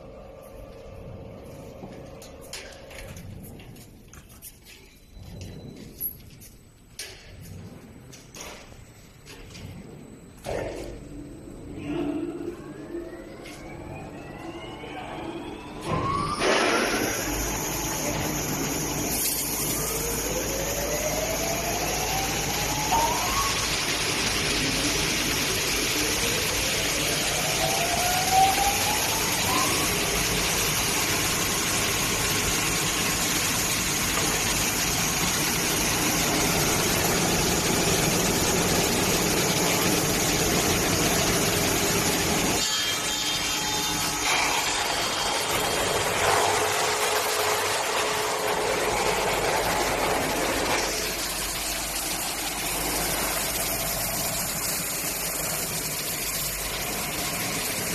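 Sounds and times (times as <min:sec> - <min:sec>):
rising machine whine: 0:07.6 - 0:57.9
sanding machine rumbling: 0:16.9 - 0:42.6.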